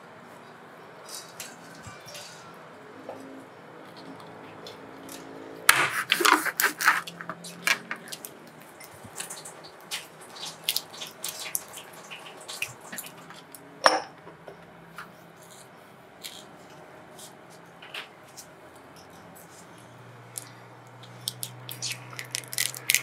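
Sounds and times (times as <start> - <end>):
knife trimming prawn shells: 5.7 - 8.3, 21.0 - 23.0.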